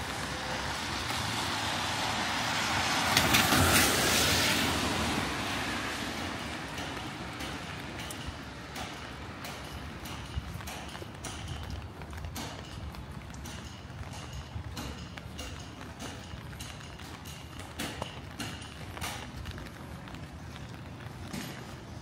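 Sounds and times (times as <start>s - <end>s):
vehicle passing by: 0.0s - 6.7s.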